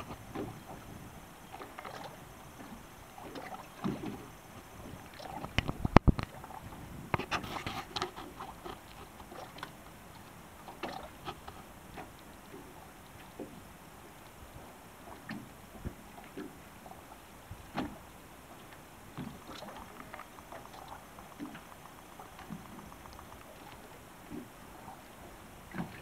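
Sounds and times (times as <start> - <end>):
seawater slapping and splashing: 0.0 - 9.9, 10.6 - 12.6, 19.1 - 25.1.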